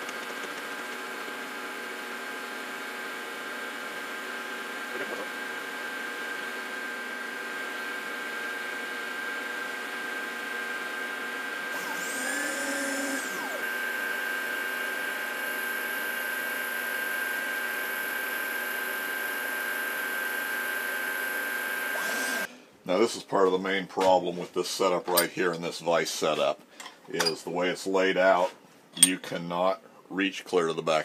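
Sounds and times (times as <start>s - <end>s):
milling machine cutting metal: 11.7s - 16.5s, 20.8s - 22.5s.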